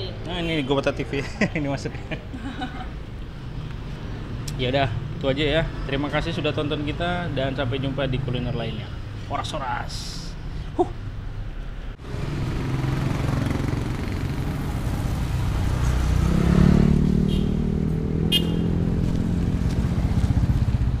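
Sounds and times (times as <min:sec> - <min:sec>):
motorcycle engine revving: 0:12.0 - 0:21.0.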